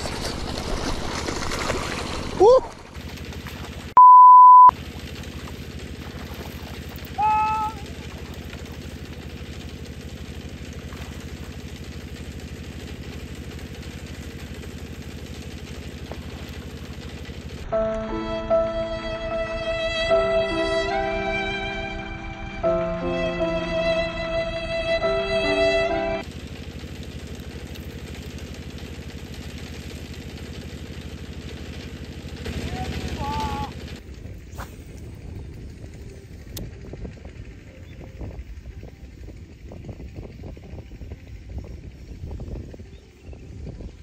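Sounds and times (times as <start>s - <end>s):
small engine running: 0.0s - 4.0s, 4.7s - 44.0s
violin music: 17.6s - 26.2s.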